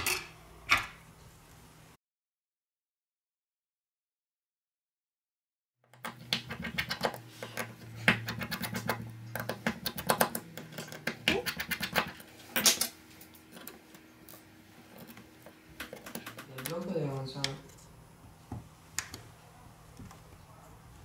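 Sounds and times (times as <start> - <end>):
faint low hum: 6.0 - 21.0.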